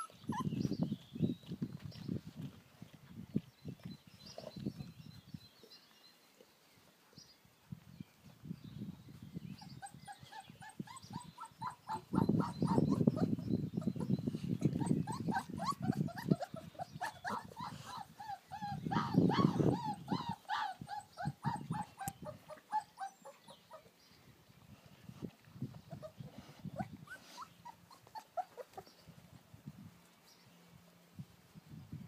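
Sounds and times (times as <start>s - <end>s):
puppies yipping and whimpering: 0.0s - 1.0s, 9.5s - 24.0s, 25.8s - 29.1s.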